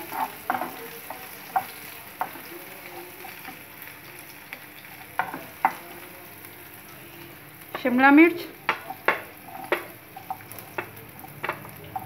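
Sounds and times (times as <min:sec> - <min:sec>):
onions sizzling in a frying pan: 0:00.0 - 0:12.0
spatula knocking against pan: 0:08.6 - 0:12.0.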